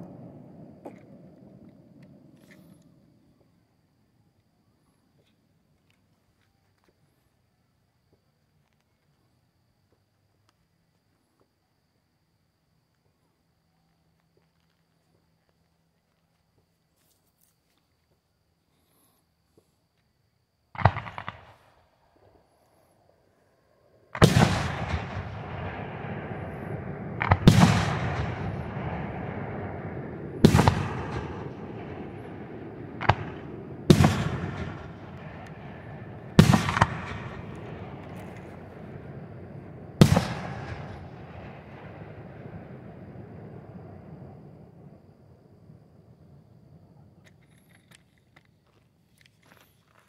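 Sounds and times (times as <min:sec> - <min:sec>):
fireworks booming with echo: 0:20.8 - 0:21.7, 0:24.1 - 0:45.4.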